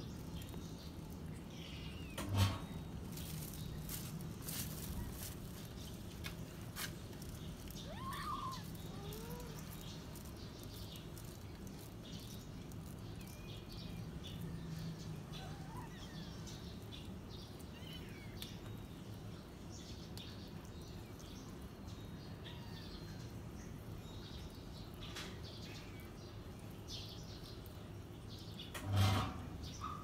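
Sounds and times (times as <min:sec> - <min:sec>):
kittens chewing and licking: 0:05.0 - 0:13.7
faint high kitten calls: 0:07.8 - 0:09.8, 0:15.3 - 0:16.4.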